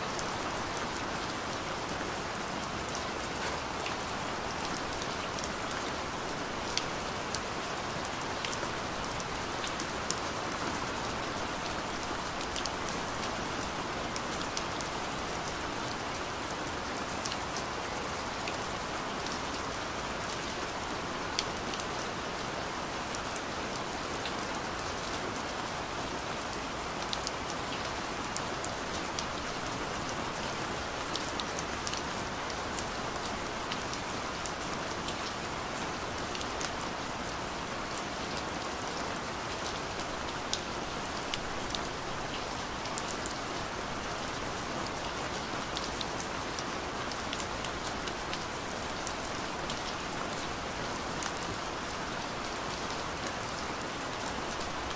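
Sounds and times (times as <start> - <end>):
steady rain: 0.0 - 54.9.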